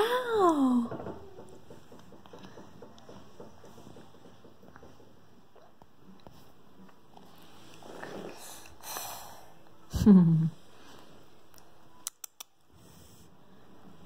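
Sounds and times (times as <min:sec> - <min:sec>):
soft breathy snuffles: 0:07.3 - 0:09.6.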